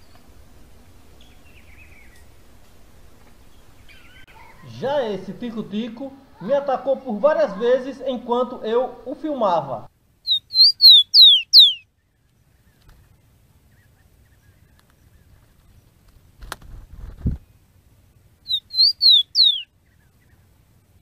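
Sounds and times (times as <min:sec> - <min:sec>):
sparrow singing: 0:01.1 - 0:02.4, 0:03.4 - 0:05.5, 0:10.2 - 0:15.8, 0:18.4 - 0:20.5.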